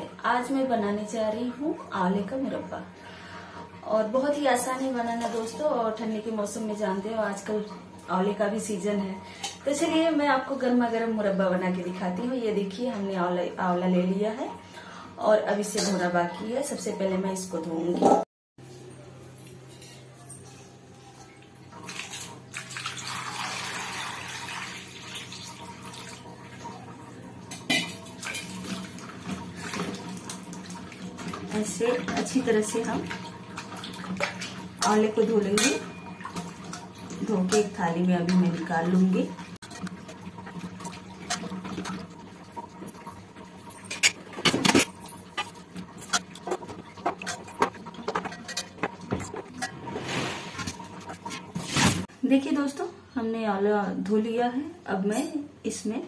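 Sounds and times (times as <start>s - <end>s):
water pouring and splashing: 21.2s - 52.1s.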